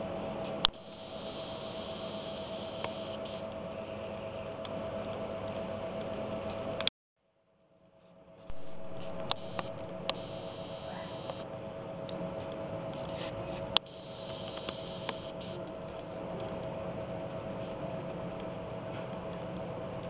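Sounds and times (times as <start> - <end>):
machine humming with whine: 0.0 - 6.9, 7.7 - 20.0
sharp clicks: 1.7 - 3.4, 8.5 - 11.4, 13.8 - 15.5.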